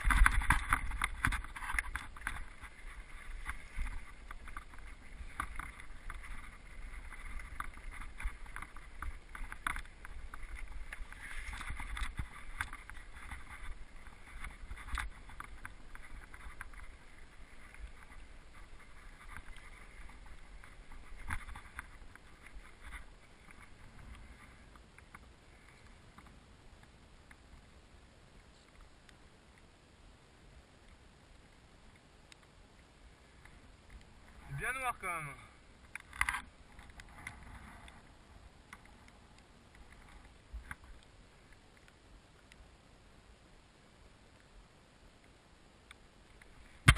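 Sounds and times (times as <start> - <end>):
wind rumble on microphone: 0.0 - 25.2
bike rattling over stones: 0.0 - 25.7, 34.2 - 37.9.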